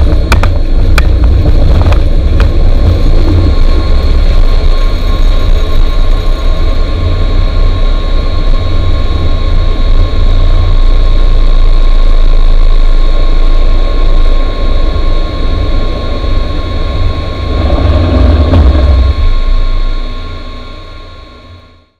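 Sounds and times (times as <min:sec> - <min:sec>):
deep rumble from runway: 0:00.0 - 0:21.9
jet engine whine: 0:00.0 - 0:21.9.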